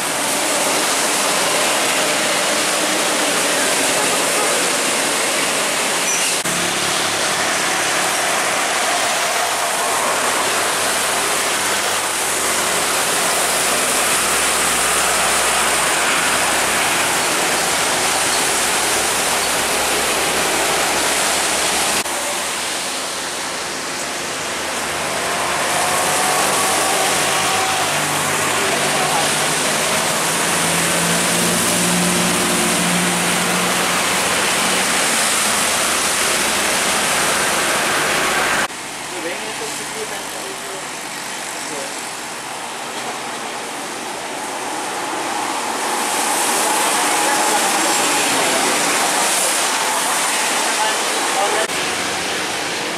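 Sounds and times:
truck engines humming: 0.0s - 38.9s
rain: 0.0s - 52.9s
tyres hissing on wet road: 0.0s - 52.9s.

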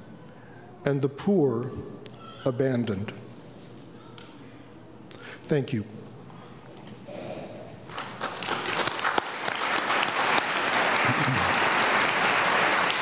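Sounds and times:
congregation applauding: 7.9s - 13.0s.

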